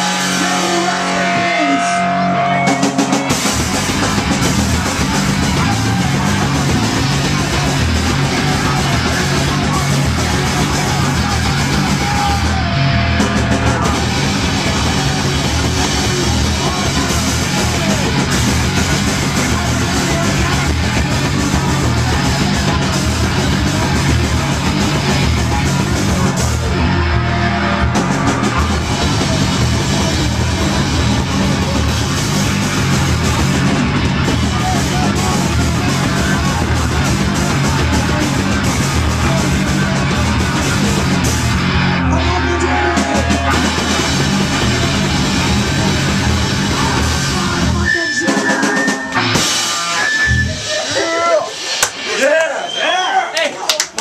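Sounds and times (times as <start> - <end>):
singer yelling into microphone: 0.0 - 3.6, 4.4 - 24.4, 34.3 - 40.9, 42.0 - 44.7, 46.7 - 49.1
distorted electric guitar: 0.0 - 52.5
bass guitar: 0.0 - 52.9
drums: 0.0 - 54.0.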